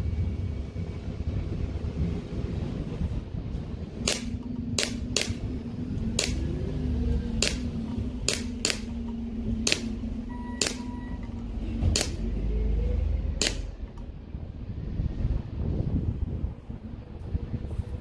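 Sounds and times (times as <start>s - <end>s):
wind on microphone: 0.0s - 10.3s, 11.4s - 18.0s
air pistol shots: 4.0s - 5.5s, 6.2s - 6.5s, 7.4s - 9.0s, 9.6s - 10.0s, 10.6s - 10.9s, 11.9s - 12.2s, 13.4s - 13.7s.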